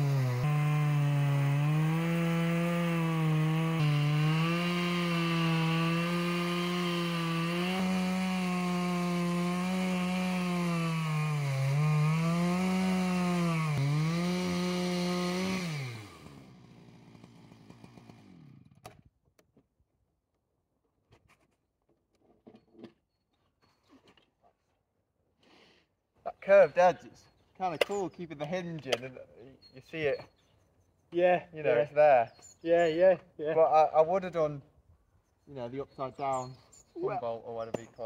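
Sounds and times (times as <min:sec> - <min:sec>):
chainsaw cutting through log: 0:00.0 - 0:19.0.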